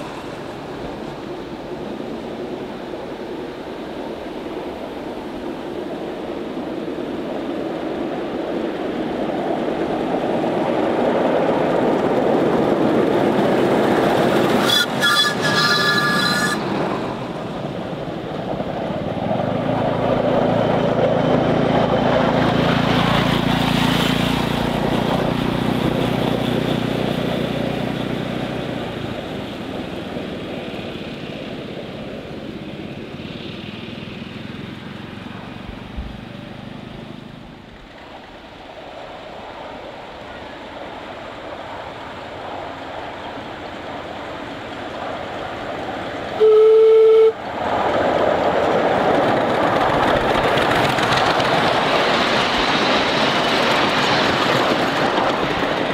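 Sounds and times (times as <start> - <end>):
miniature steam locomotives passing: 0.0 - 55.9
short shrill whistle: 14.6 - 16.6, 46.4 - 47.4.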